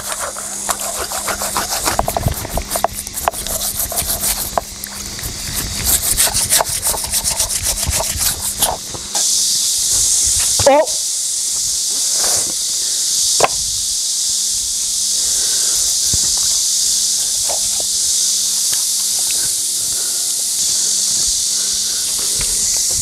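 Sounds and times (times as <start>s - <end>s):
faint steady hum: 0.0s - 23.0s
steady high hiss: 0.0s - 23.0s
pig's head thumping on concrete: 13.4s - 13.6s.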